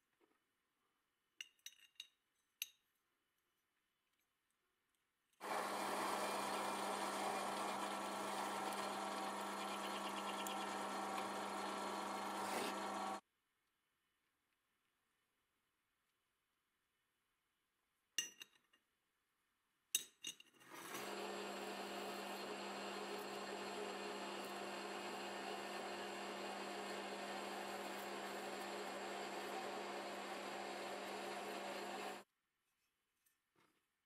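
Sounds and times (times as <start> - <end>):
metal lathe humming: 5.4 - 13.2, 21.0 - 32.2.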